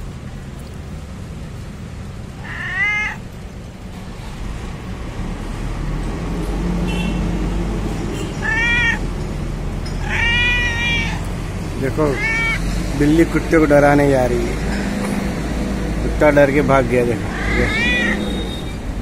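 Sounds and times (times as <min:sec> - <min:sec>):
cat meowing: 0:02.3 - 0:03.3, 0:08.2 - 0:09.2, 0:09.9 - 0:12.9, 0:17.2 - 0:18.7.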